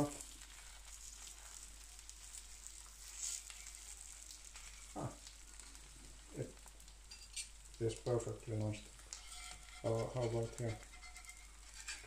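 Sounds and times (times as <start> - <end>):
eggs sizzling on a griddle: 0.0 - 12.0.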